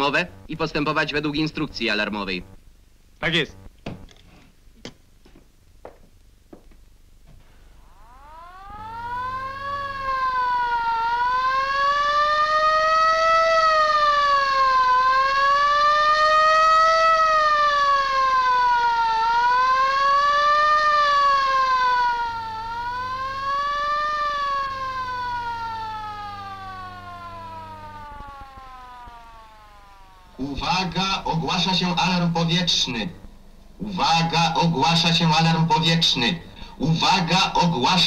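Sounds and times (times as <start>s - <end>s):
air-raid siren wailing: 7.7s - 33.2s.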